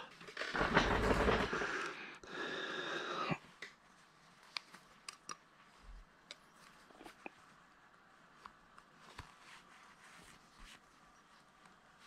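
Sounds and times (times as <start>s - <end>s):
breathing close to microphone: 0.7s - 3.5s.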